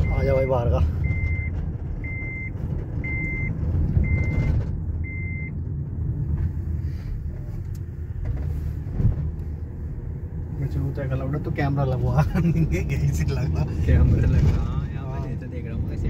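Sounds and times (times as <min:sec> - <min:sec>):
electronic warning beeps: 0:00.0 - 0:05.5
vehicle engine rumbling: 0:00.0 - 0:16.0.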